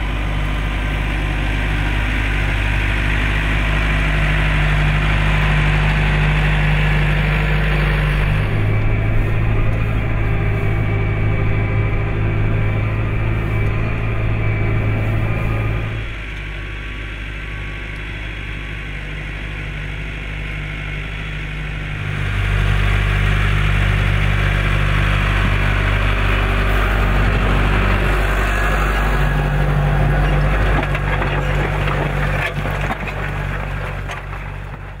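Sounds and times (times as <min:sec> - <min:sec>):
tractor diesel engine running: 0:00.0 - 0:35.0
soil crunching under tyres: 0:23.4 - 0:35.0.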